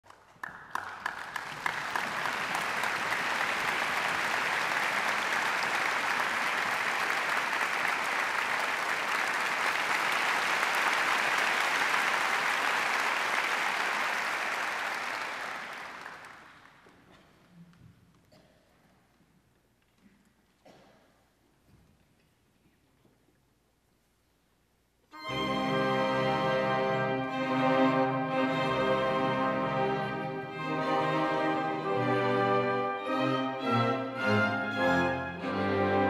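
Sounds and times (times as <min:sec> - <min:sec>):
audience applause: 0:00.0 - 0:17.1.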